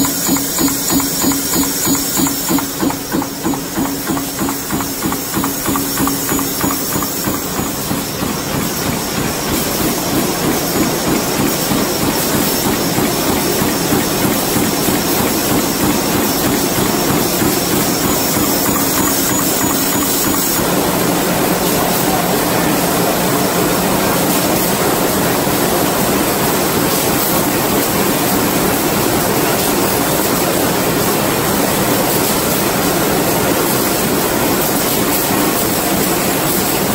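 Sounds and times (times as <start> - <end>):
power presses stamping: 0.0 - 20.8.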